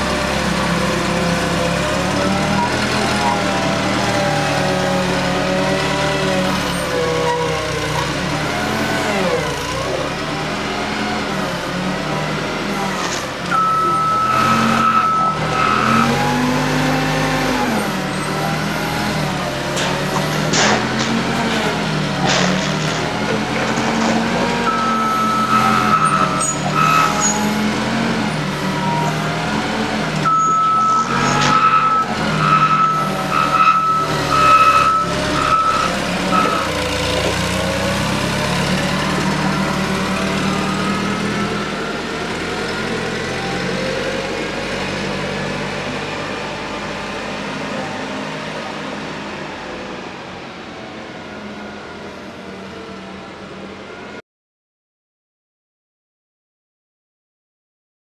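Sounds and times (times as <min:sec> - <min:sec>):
forklift engine running: 0:00.0 - 0:54.2
reversing alarm beeping: 0:13.5 - 0:16.2, 0:24.6 - 0:27.4, 0:30.2 - 0:36.7.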